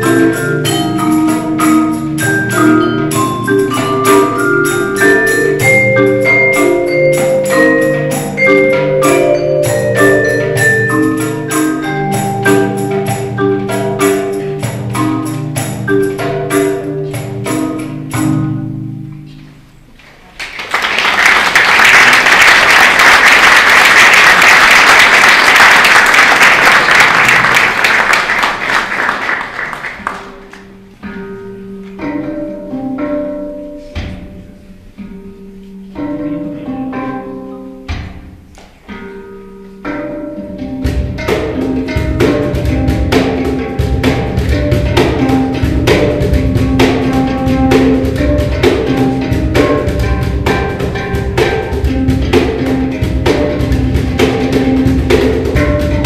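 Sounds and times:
handpan ringing notes: 0:00.0 - 0:19.7, 0:30.3 - 0:56.0
marimba and vibraphone ensemble: 0:00.0 - 0:19.9, 0:30.1 - 0:56.0
audience applauding: 0:20.2 - 0:30.7.

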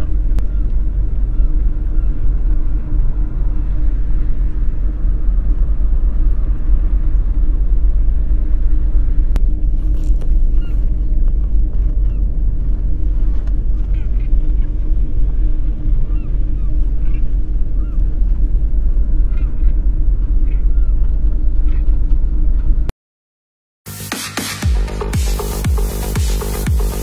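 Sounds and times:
deep rumbling drone: 0:00.0 - 0:22.9, 0:23.9 - 0:27.0.

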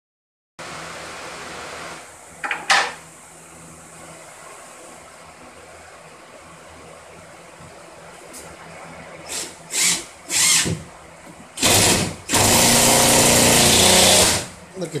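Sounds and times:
cordless drill driving screws: 0:09.3 - 0:10.7, 0:11.6 - 0:14.5.

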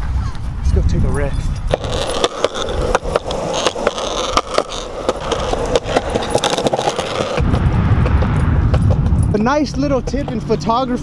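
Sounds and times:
skateboard wheels rolling on concrete: 0:00.0 - 0:11.0
wheels clacking over joints: 0:01.5 - 0:07.4
low rumble: 0:02.6 - 0:11.0.

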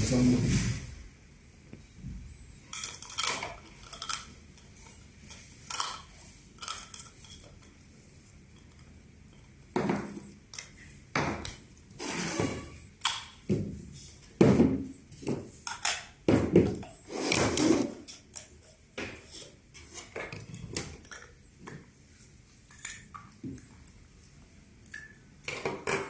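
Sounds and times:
plastic valve parts knocking and clicking: 0:14.3 - 0:17.0, 0:24.9 - 0:26.0.

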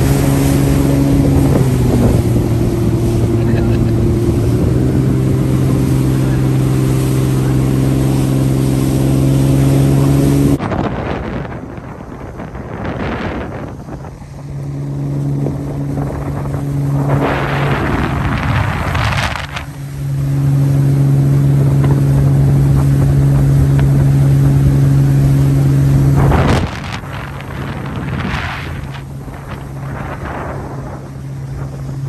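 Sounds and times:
boat motor humming: 0:00.0 - 0:32.0
wind buffeting microphone: 0:00.0 - 0:32.0.

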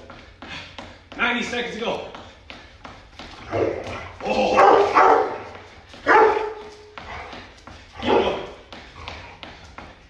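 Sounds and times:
feet on concrete floor: 0:00.0 - 0:10.0
dog barking: 0:04.6 - 0:06.7, 0:08.0 - 0:08.4.

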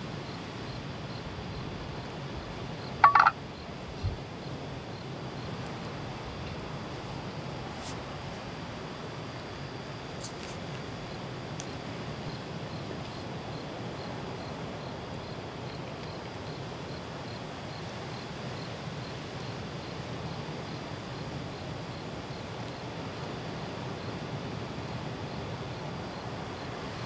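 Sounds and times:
wind: 0:00.0 - 0:27.0
cricket chirping: 0:00.2 - 0:05.6, 0:11.0 - 0:22.8
sharp clicks: 0:03.0 - 0:03.3.

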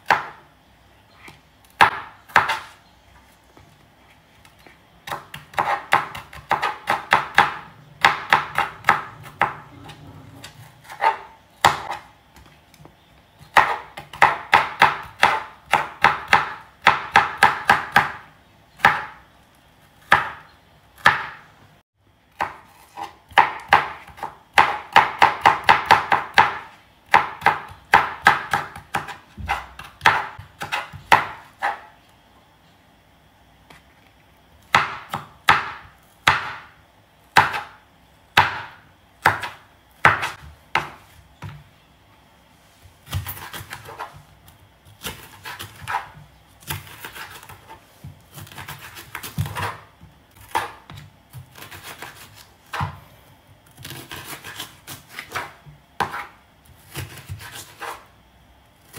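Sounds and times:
knife chopping on cutting board: 0:01.8 - 0:02.8, 0:05.0 - 0:12.5, 0:13.4 - 0:18.2, 0:18.8 - 0:19.2, 0:20.0 - 0:20.4, 0:21.0 - 0:21.4, 0:22.3 - 0:31.9, 0:34.7 - 0:36.7, 0:37.4 - 0:37.8, 0:38.4 - 0:41.6, 0:43.0 - 0:53.0, 0:53.6 - 0:58.1.

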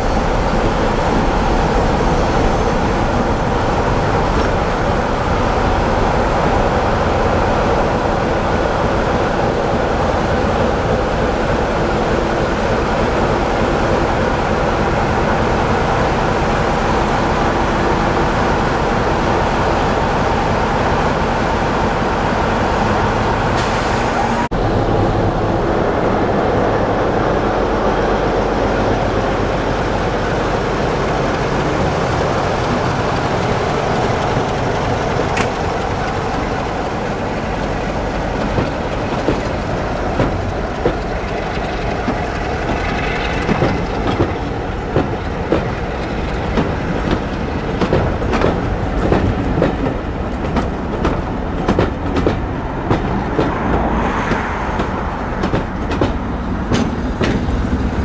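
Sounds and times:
train wheels clicking over rail joints: 0:00.1 - 0:07.5, 0:28.8 - 0:58.0.

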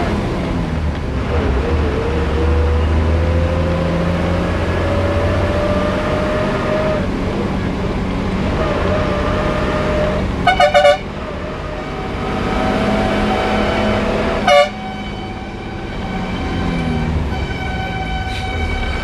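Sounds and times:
bus engine drone: 0:00.0 - 0:19.0
road noise: 0:00.0 - 0:19.0
vehicle horn toots: 0:10.4 - 0:11.1, 0:14.4 - 0:19.0.

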